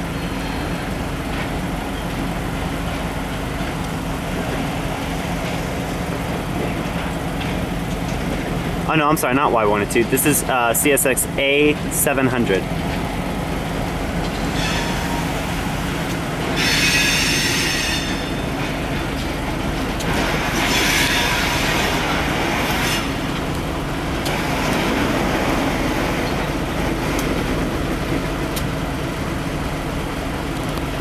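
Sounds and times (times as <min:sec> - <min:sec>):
steel wheels squealing on rail: 0:00.0 - 0:01.1, 0:14.2 - 0:23.5, 0:24.2 - 0:27.6
diesel locomotives running: 0:00.0 - 0:31.0.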